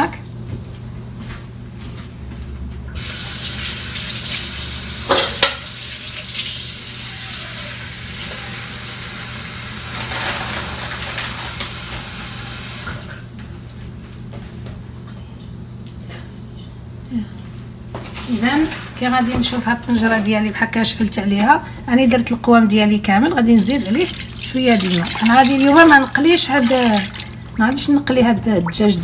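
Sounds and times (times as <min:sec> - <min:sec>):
steady low hum: 0:19.6 - 0:29.0
tap water splashing into container: 0:23.6 - 0:28.1.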